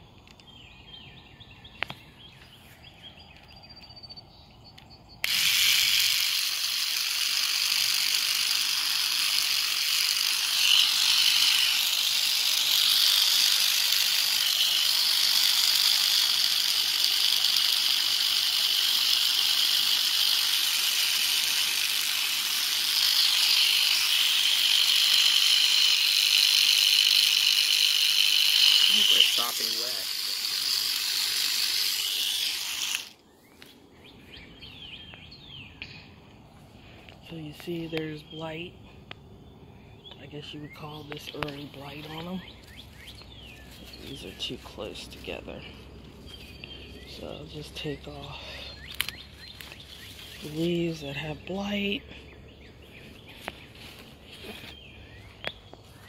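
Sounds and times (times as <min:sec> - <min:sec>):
garden sprayer hissing: 0:05.2 - 0:33.2, 0:43.4 - 0:52.0.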